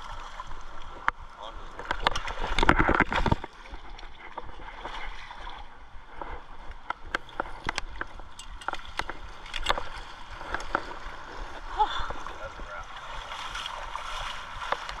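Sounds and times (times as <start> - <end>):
river water rushing: 9.2 - 15.0.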